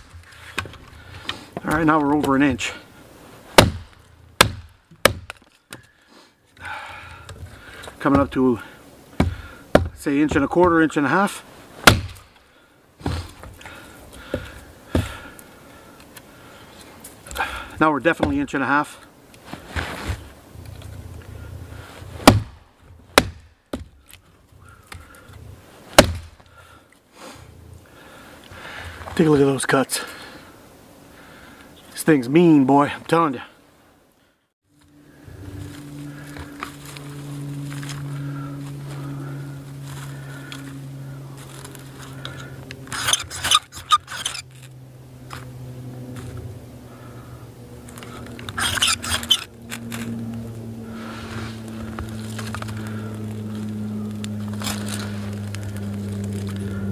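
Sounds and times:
hatchet chopping wood: 3.5s - 5.8s, 8.1s - 8.4s, 9.1s - 10.9s, 11.8s - 12.4s, 13.0s - 15.3s, 18.2s - 18.4s, 22.2s - 24.1s, 26.0s - 26.4s
ferro rod scraped with striker: 42.9s - 44.5s, 48.5s - 49.5s.

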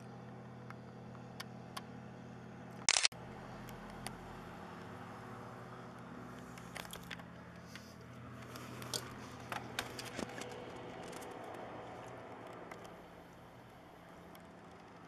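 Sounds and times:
helicopter low hum: 0.0s - 15.0s
sharp clicks: 2.8s - 4.2s.

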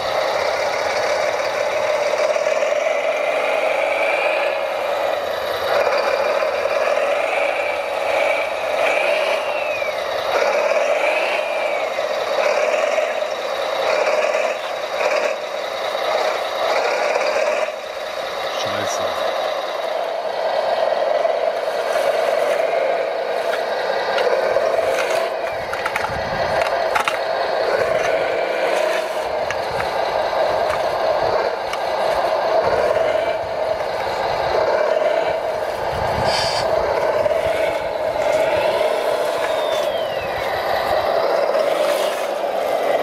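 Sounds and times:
model loader mechanical hum: 0.0s - 43.0s.

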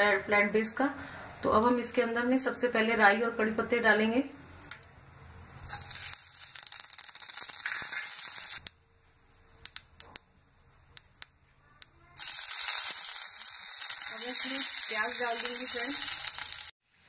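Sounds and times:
leaves sizzling in oil: 5.7s - 8.7s, 12.2s - 17.0s
seeds popping: 5.7s - 8.7s, 12.2s - 16.7s
seeds sizzling in hot oil: 5.7s - 8.7s, 12.2s - 17.0s.

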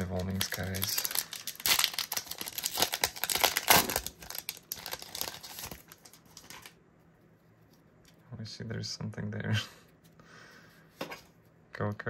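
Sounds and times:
foil wrapper crinkling and tearing: 0.0s - 6.8s.

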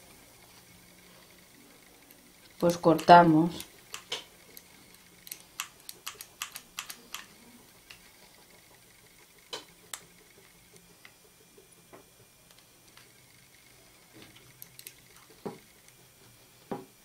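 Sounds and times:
hot glue gun clicks: 2.6s - 4.7s, 5.3s - 7.3s.

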